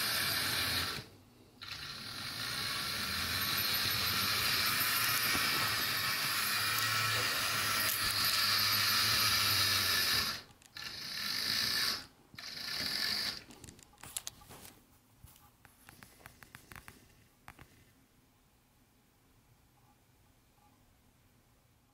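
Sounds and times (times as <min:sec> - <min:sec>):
toy train motor whirring: 0:00.0 - 0:14.3.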